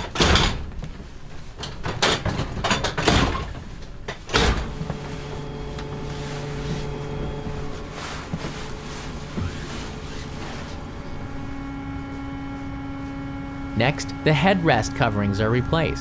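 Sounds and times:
train seats clunking into place: 0:00.0 - 0:12.3
steady hum: 0:03.5 - 0:16.0.

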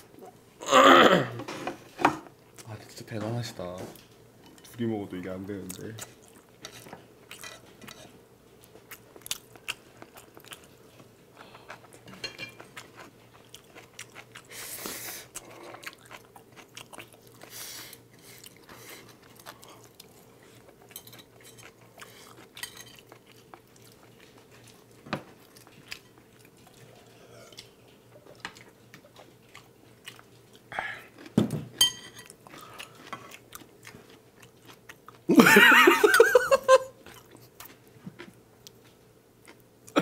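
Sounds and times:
chewing and slurping noodles: 0:11.4 - 0:31.4.

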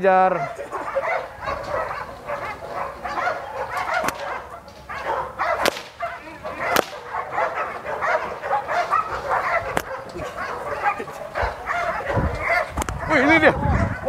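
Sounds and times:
dogs barking: 0:00.2 - 0:14.0
stick cracks: 0:03.8 - 0:04.8, 0:05.6 - 0:06.0, 0:06.7 - 0:07.0.

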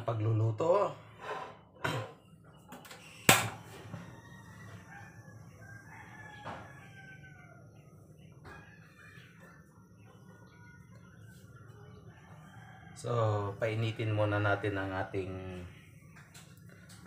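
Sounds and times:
rooster crowing: 0:03.6 - 0:09.6, 0:12.0 - 0:14.4.

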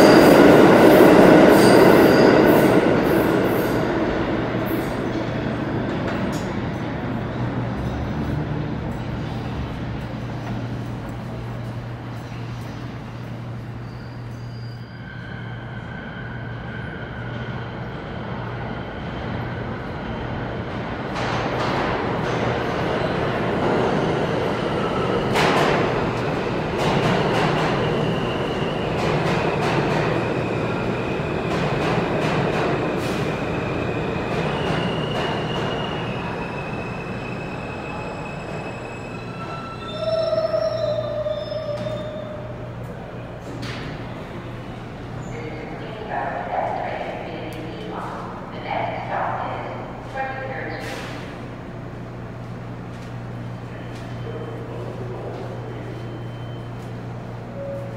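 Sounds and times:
subway train rumble: 0:00.0 - 0:57.9
high wheel squeals: 0:13.7 - 0:16.9, 0:34.7 - 0:42.5.

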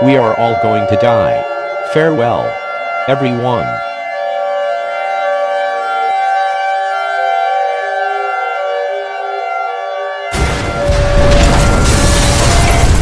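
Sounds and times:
siren-like alarm tone: 0:00.0 - 0:13.0.

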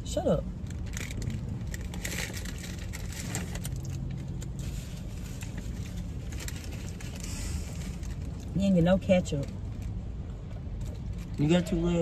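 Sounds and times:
paper wrapper crinkling: 0:00.7 - 0:08.4.

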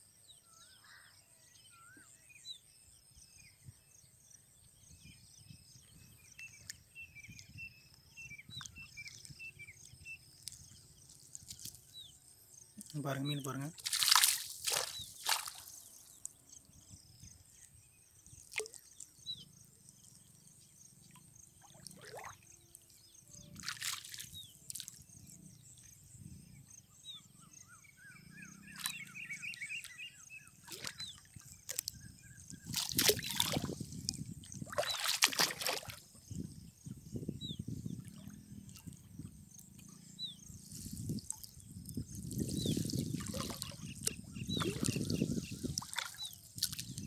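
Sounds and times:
water splashing and dripping: 0:12.8 - 0:16.4, 0:18.3 - 0:19.1, 0:21.6 - 0:22.4, 0:23.5 - 0:25.0, 0:28.7 - 0:29.9, 0:30.6 - 0:36.1, 0:40.8 - 0:47.0.

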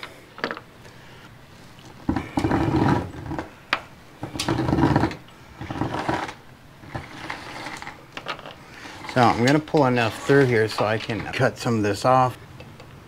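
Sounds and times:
wire dragging through metal beam: 0:04.4 - 0:08.0, 0:08.8 - 0:11.6.

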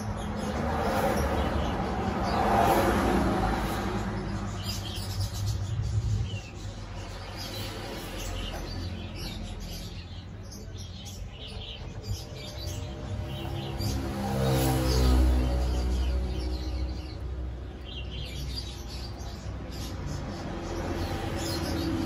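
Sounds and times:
small birds chirping: 0:00.0 - 0:22.0
low rumble: 0:03.9 - 0:07.3.

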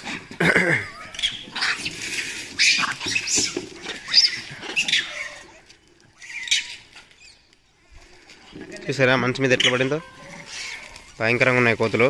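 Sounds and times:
monkeys screeching: 0:00.8 - 0:07.5, 0:09.4 - 0:11.2.

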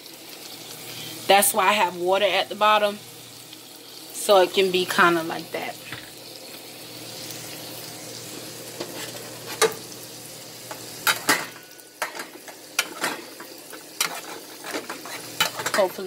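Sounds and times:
food sizzling in a skillet: 0:00.0 - 0:16.0.

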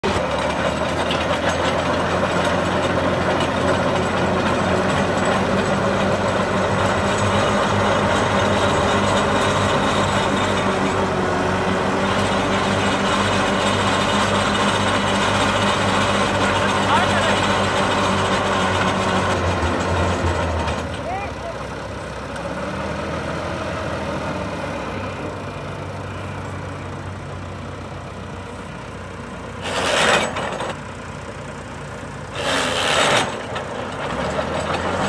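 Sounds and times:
augers boring into soil: 0:00.0 - 0:21.4, 0:29.6 - 0:30.9, 0:32.3 - 0:35.0
tractor diesel engine running: 0:00.0 - 0:35.0.

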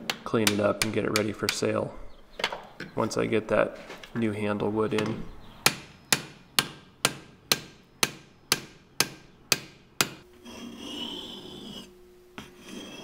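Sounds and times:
hammer striking steel: 0:05.7 - 0:10.2
whetstone rubbing on blade: 0:10.4 - 0:13.0.

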